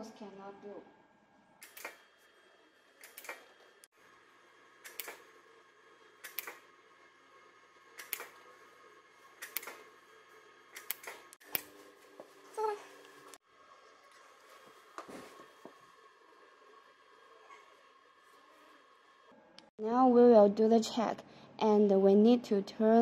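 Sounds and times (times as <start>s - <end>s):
microneedle device clicking: 3.0s - 3.4s, 6.2s - 6.6s, 8.0s - 8.4s, 9.4s - 9.8s, 10.8s - 11.7s.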